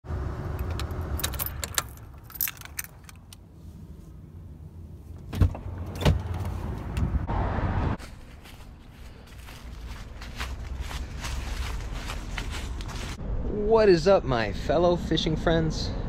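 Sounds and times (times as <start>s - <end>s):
keys jangling: 0.6s - 3.4s
car door opening: 5.2s - 7.2s.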